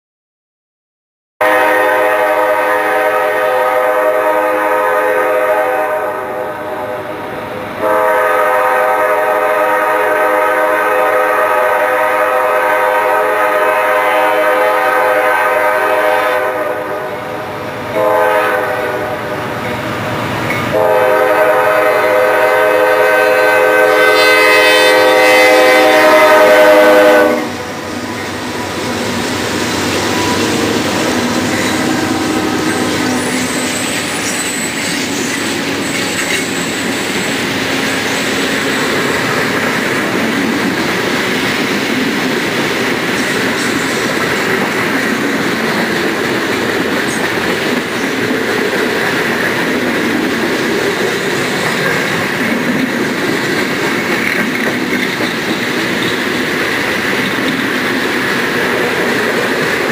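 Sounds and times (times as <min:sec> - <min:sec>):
train air horn blasts: 0:01.4 - 0:19.5, 0:20.7 - 0:29.2, 0:30.0 - 0:34.4
rumble of locomotives passing: 0:01.5 - 0:59.9.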